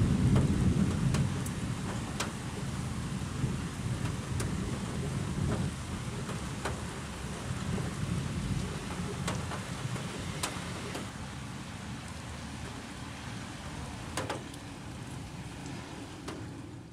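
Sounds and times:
distant thunder rumbling: 0.0s - 11.2s
steady rain hissing: 0.0s - 16.9s.

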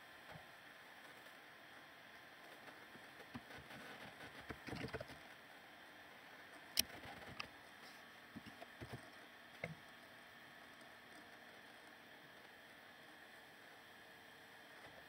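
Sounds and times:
faint steady hiss: 0.0s - 15.0s
small clicks and knocks: 2.5s - 5.2s, 6.7s - 7.6s.

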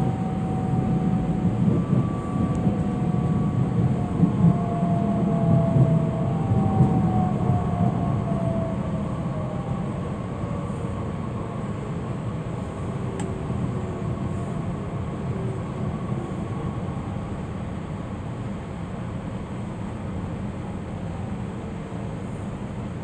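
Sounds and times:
train rolling rumble: 0.0s - 23.0s.

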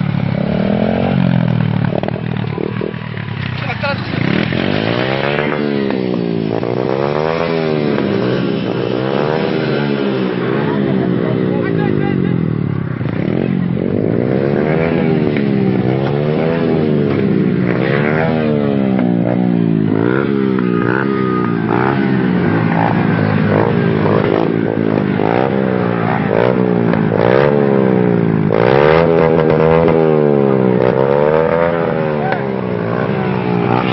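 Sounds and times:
small motorcycle revving: 0.0s - 33.9s.

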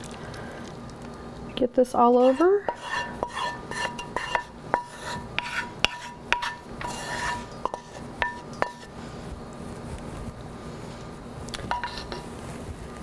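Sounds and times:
wooden spoon knocking on skillet: 2.7s - 7.0s, 7.6s - 8.9s.

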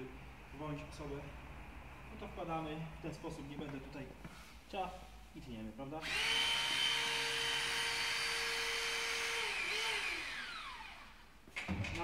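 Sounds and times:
hydraulic cutter motor whining: 6.0s - 11.1s.

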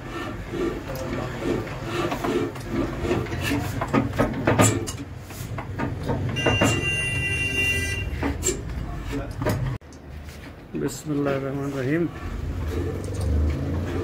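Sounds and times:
metal clanks and knocks: 0.6s - 10.0s.

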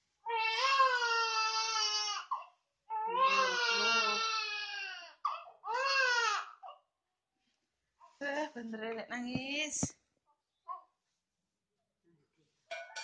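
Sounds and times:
baby crying: 0.2s - 6.9s.

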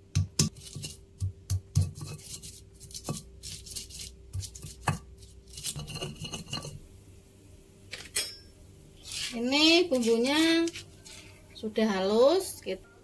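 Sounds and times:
stone pestle knocking on stone: 0.1s - 0.6s, 1.2s - 2.1s
pestle scraping in mortar: 0.4s - 6.8s, 9.0s - 11.2s.

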